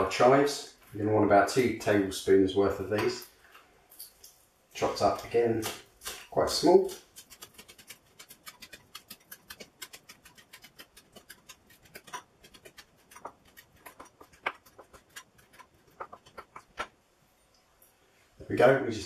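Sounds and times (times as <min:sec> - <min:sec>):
knife chopping on plastic board: 0:06.9 - 0:17.0.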